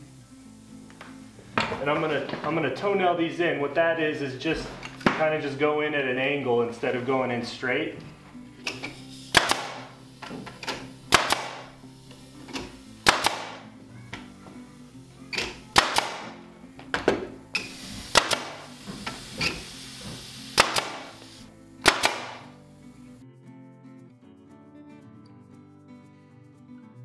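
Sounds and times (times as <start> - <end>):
staple gun firing into wood: 8.7 - 9.9, 10.6 - 11.7, 12.5 - 13.6, 15.4 - 16.4, 18.1 - 18.6, 20.5 - 21.2, 21.8 - 22.6.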